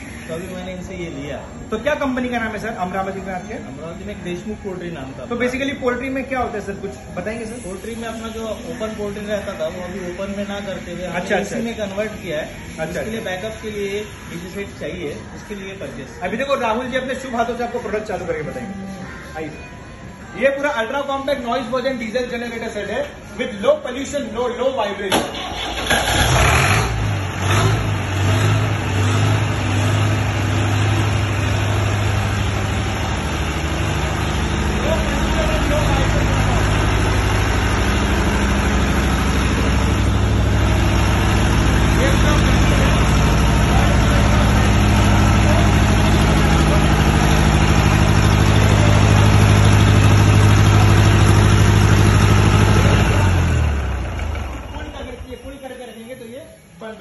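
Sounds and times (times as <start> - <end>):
diesel generator starting and running: 0.0 - 57.0.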